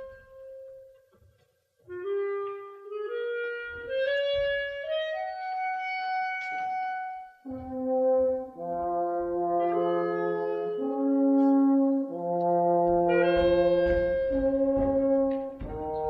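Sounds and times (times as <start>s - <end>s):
brass sustained low notes: 7.5s - 16.0s
woodwinds playing held notes: 7.5s - 16.0s.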